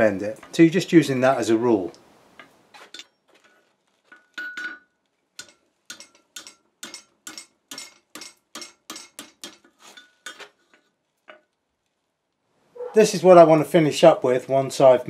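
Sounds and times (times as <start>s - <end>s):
hammer striking hot steel: 4.1s - 10.6s.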